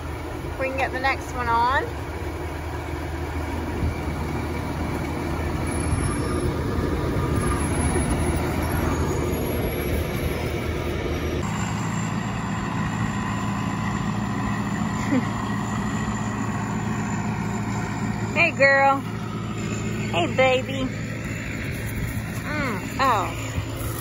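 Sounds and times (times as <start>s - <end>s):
combine engine running: 0.0s - 24.0s.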